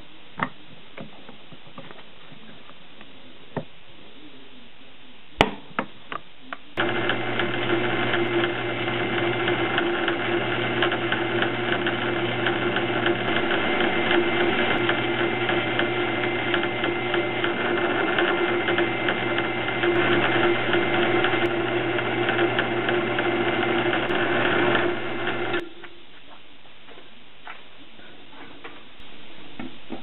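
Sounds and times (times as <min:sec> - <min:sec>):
drill cutting into metal: 0:06.8 - 0:25.7
drill press motor hum: 0:06.8 - 0:25.8.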